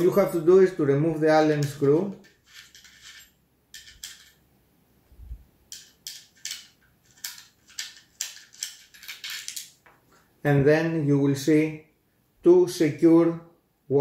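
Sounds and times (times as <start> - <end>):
allen key scraping and clicking: 5.7 - 9.8.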